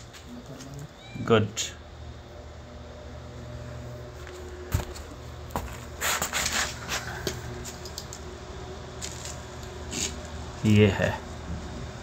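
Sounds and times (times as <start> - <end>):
low mechanical hum: 0.0 - 12.0
rustling noise: 4.2 - 7.8.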